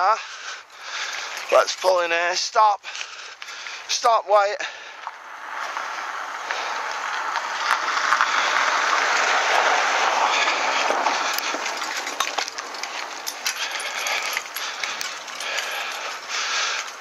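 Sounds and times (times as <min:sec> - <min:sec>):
bicycle clinking and rattling: 0:00.3 - 0:03.8, 0:10.3 - 0:17.0
car tyres hissing on wet road: 0:05.3 - 0:11.2.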